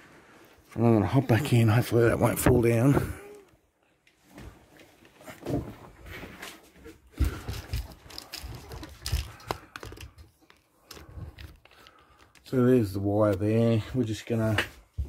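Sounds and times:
cable rustling and knocking: 4.2 - 12.5.

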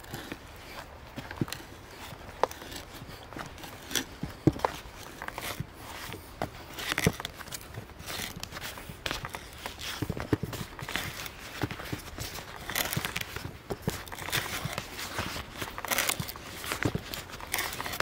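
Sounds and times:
hand auger boring into wood: 0.0 - 18.0.

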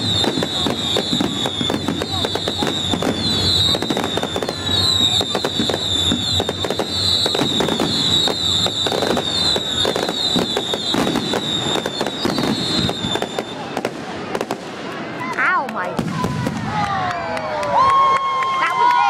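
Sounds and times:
high whistling tone: 0.0 - 13.7
fireworks bangs and crackles: 0.0 - 17.8.

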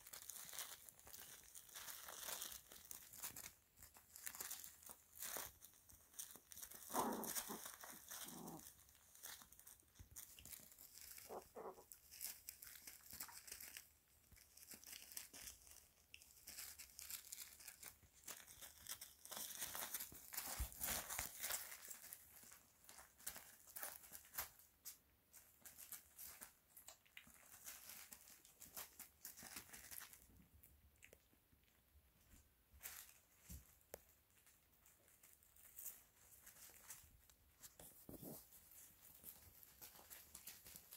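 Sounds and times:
plastic sheeting crinkling: 0.0 - 30.4, 32.2 - 40.9
puppy whimpers: 11.2 - 11.9.

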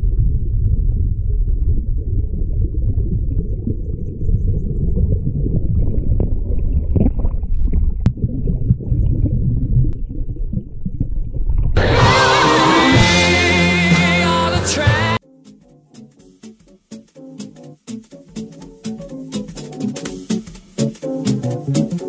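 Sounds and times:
muffled underwater stream rumble: 0.0 - 11.8
music with singing: 11.8 - 15.3.

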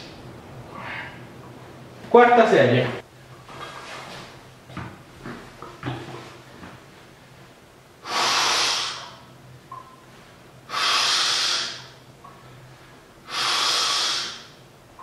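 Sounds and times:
man breathing hard: 0.7 - 1.3, 8.0 - 9.2, 10.7 - 12.0, 12.6 - 14.6.

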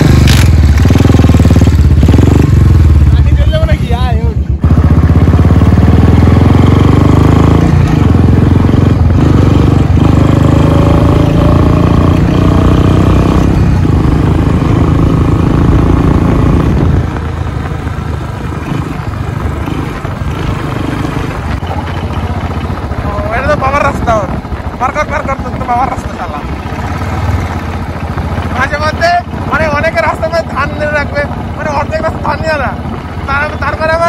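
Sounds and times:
motorcycle engine running: 0.0 - 34.0.

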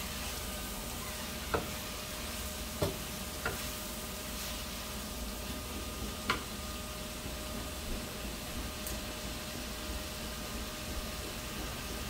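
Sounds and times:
onions sizzling in a frying pan: 0.0 - 7.8, 8.4 - 12.0
wooden spatula knocking on a pan: 1.5 - 1.8, 2.8 - 3.7.

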